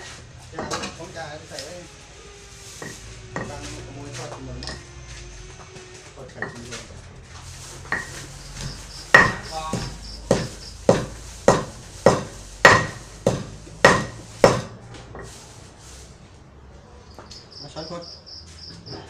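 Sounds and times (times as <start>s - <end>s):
wooden pestle pounding in mortar: 7.9s - 14.8s.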